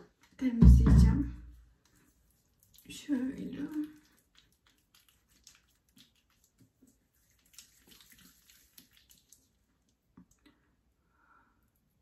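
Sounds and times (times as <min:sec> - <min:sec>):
fingertips rubbing wet skin: 0:01.8 - 0:09.5.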